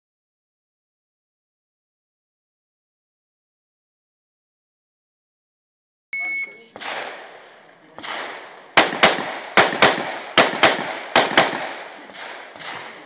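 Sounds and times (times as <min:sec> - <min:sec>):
rifle shots with echo: 0:06.7 - 0:13.0.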